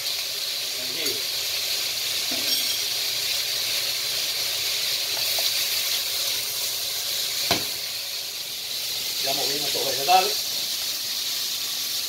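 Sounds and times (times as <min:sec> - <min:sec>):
vegetables sizzling in a wok: 0:00.0 - 0:12.0
wooden spoon knocking pan: 0:07.5 - 0:07.7.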